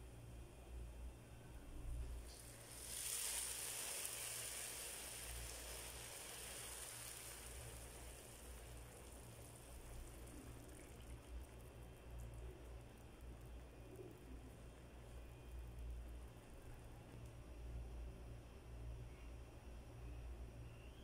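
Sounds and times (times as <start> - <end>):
syrup sizzling on hot cake: 2.3 - 11.7.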